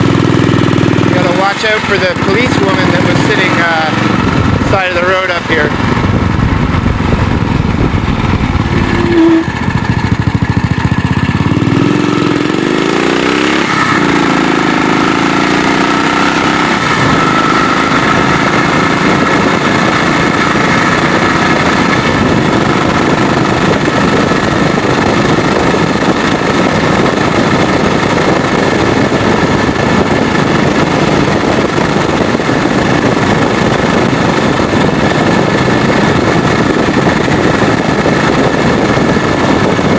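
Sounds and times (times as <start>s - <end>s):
motorcycle engine running: 0.0s - 39.9s
wind noise: 0.0s - 39.9s.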